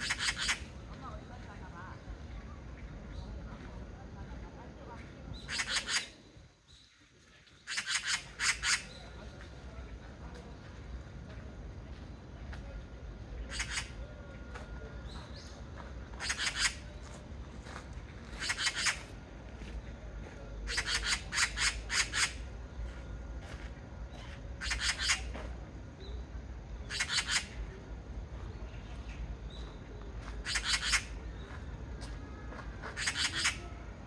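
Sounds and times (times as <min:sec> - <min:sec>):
magpie chattering call: 0:00.0 - 0:01.0, 0:05.3 - 0:06.2, 0:07.6 - 0:09.1, 0:13.4 - 0:14.1, 0:16.2 - 0:16.9, 0:18.3 - 0:19.1, 0:20.7 - 0:22.5, 0:24.6 - 0:25.4, 0:26.8 - 0:27.7, 0:30.4 - 0:31.4, 0:32.8 - 0:34.0.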